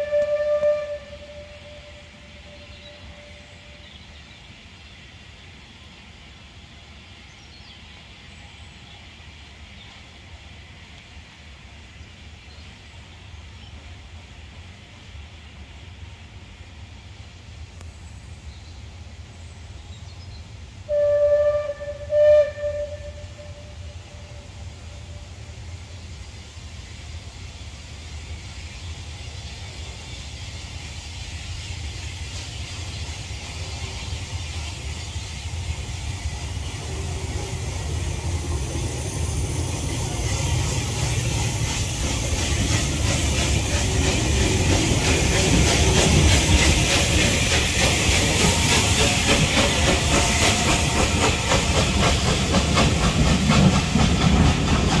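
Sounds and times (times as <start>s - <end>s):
train wheels clickety-clack: 0.0s - 1.5s, 25.0s - 55.0s
hissing steam: 0.0s - 55.0s
steam locomotive exhaust beats: 0.0s - 55.0s.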